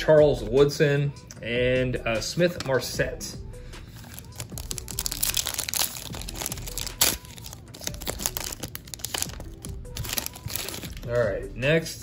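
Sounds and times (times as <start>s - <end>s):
foil wrapper crinkling and tearing: 3.9s - 11.2s.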